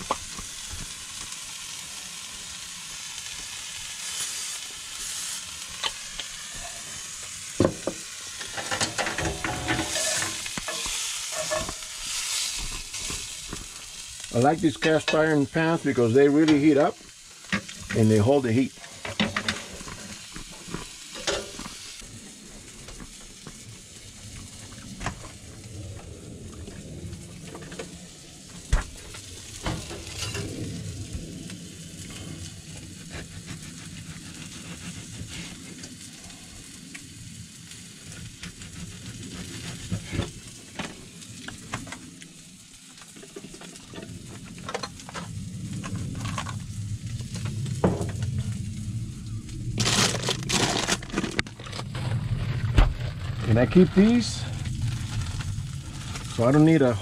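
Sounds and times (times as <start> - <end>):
hot dogs sizzling in frying pan: 0.0 - 57.0
food packages being handled: 49.8 - 52.4.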